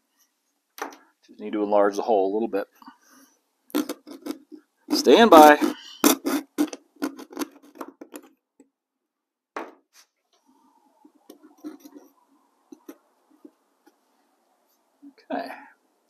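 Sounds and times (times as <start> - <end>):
tool scraping hardboard: 3.8 - 8.3, 11.3 - 13.0.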